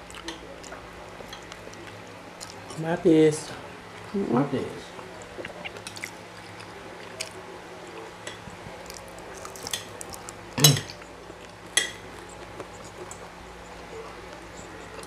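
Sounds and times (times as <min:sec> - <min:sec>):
cutlery clinking on plates: 0:08.2 - 0:08.5, 0:10.6 - 0:11.0, 0:11.7 - 0:12.1.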